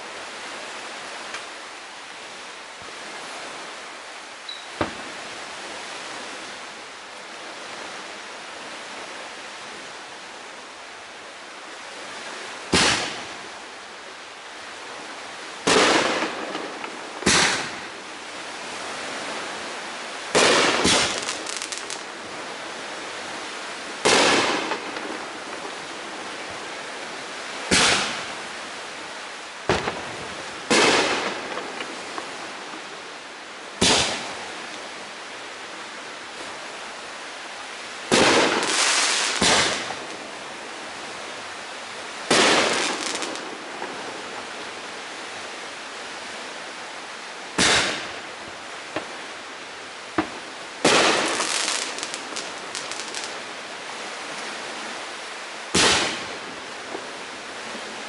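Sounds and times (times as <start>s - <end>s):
steady hiss: 0.0s - 58.0s
fireworks bangs: 12.7s - 13.3s, 15.6s - 17.9s, 20.3s - 22.0s, 24.0s - 25.9s, 27.7s - 28.3s, 29.7s - 32.3s, 33.8s - 34.4s, 38.1s - 40.2s, 42.3s - 44.4s, 47.6s - 48.2s, 50.2s - 53.4s, 55.7s - 56.4s.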